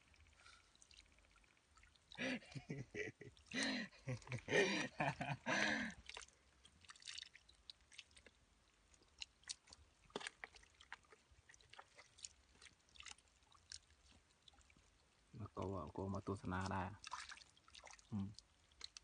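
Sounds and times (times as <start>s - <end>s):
hands squelching in wet mud: 3.4s - 15.3s, 16.4s - 19.0s.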